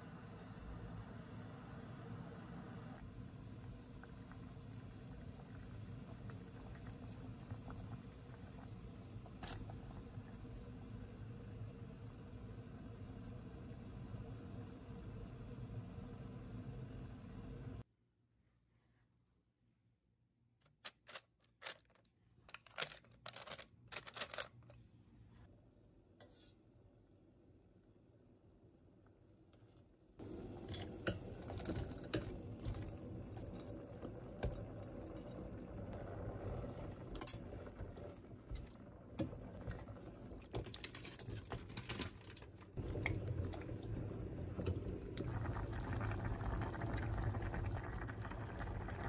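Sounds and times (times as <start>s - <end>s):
water boiling in a pot: 0.0s - 17.9s, 30.2s - 49.0s
parchment paper crinkling: 20.7s - 24.8s.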